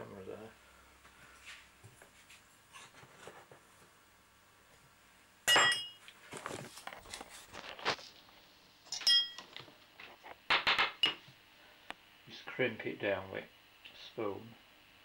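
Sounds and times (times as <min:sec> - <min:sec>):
cutlery clinking on worktop: 0:05.5 - 0:06.0, 0:08.9 - 0:09.5.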